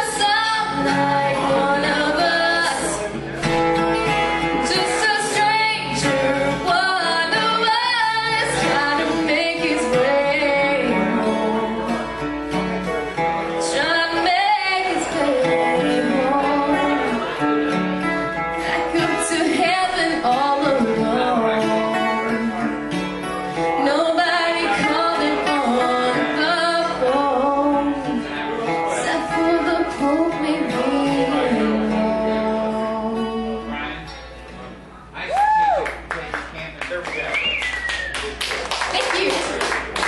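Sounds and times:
woman singing into microphone: 0:00.0 - 0:03.2, 0:04.6 - 0:12.3, 0:13.5 - 0:17.5, 0:18.6 - 0:22.9, 0:23.6 - 0:34.0
strummed acoustic guitar: 0:00.0 - 0:35.2.

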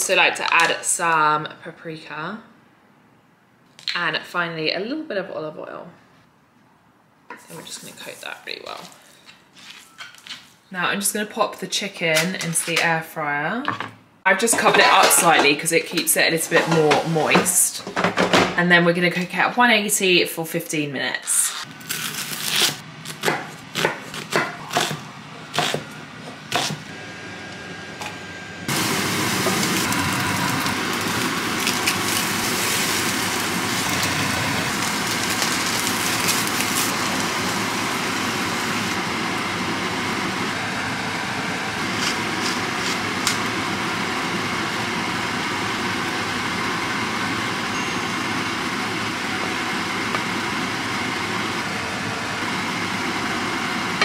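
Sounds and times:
knife chopping on wooden board: 0:23.2 - 0:25.8, 0:26.5 - 0:26.8
food sizzling in pan: 0:28.7 - 0:39.1.

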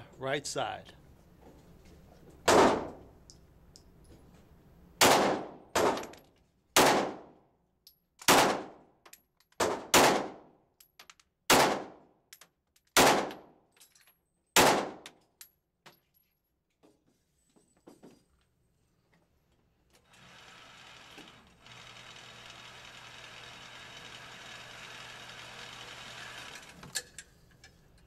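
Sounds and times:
pistol shots echoing indoors: 0:02.5 - 0:03.0, 0:05.0 - 0:06.1, 0:06.8 - 0:07.4, 0:08.2 - 0:08.8, 0:09.6 - 0:10.5, 0:11.5 - 0:12.1, 0:13.0 - 0:13.5, 0:14.6 - 0:15.1.

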